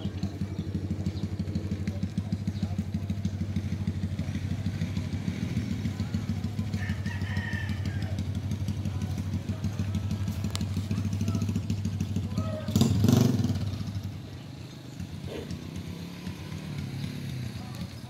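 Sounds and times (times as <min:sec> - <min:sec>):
engine idling: 0:00.0 - 0:18.0
rooster crowing: 0:06.7 - 0:08.4.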